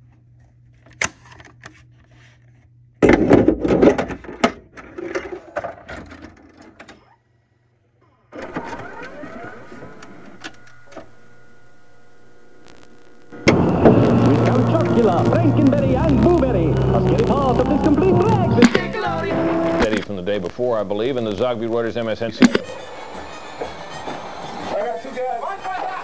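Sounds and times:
faint hum: 7.3 - 26.0
videotape hiss and buzz: 8.3 - 26.0
click: 22.4 - 22.7.

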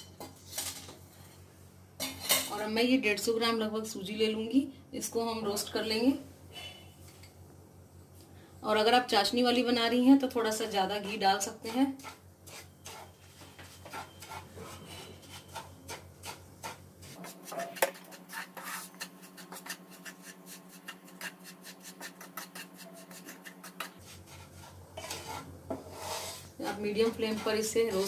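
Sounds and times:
spatula scraping a pan: 11.0 - 28.0.

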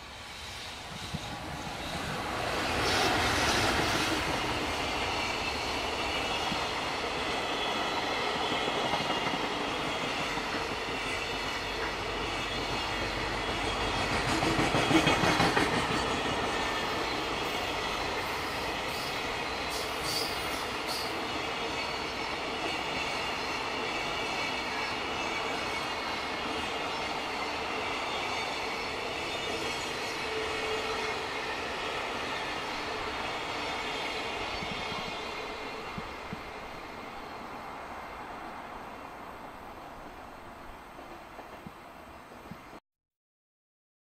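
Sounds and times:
train wheels rumbling on rail: 0.0 - 42.7
clickety-clack over rail joints: 8.0 - 25.9, 41.0 - 41.8.

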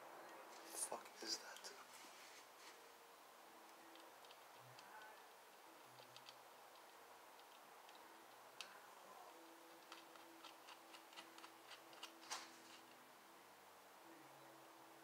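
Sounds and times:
faint low hum: 0.0 - 15.0
hand tools clicking and tapping: 9.3 - 12.2.

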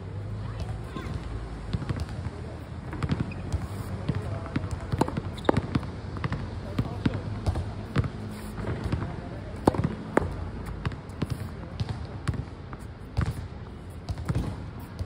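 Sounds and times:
tennis ball knocks: 9.6 - 11.4.

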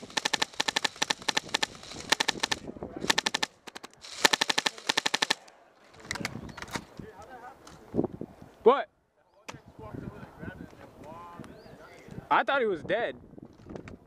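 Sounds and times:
airsoft machine gun bursts: 0.0 - 5.4.

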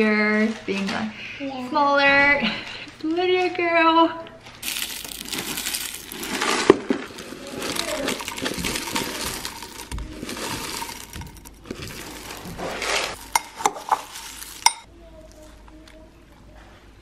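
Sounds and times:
granola pouring into bowl: 4.6 - 14.9.

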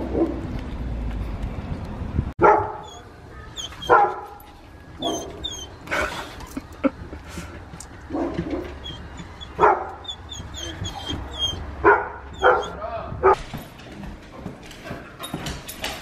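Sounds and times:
dog yelping and whining: 2.8 - 4.4, 5.0 - 5.9, 8.6 - 12.8.

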